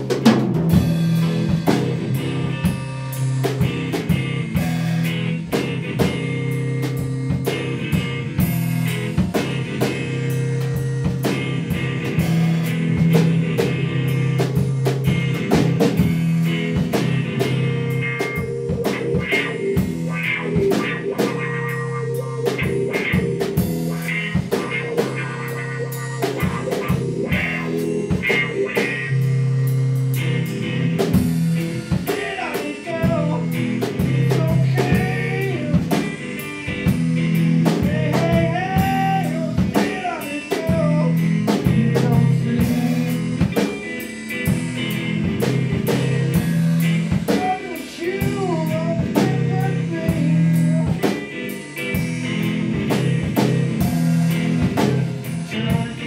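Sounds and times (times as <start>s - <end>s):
drum kit: 0.0s - 56.0s
electric guitar: 0.0s - 56.0s
man singing: 32.1s - 36.2s, 37.7s - 43.4s, 47.3s - 51.2s, 55.3s - 56.0s.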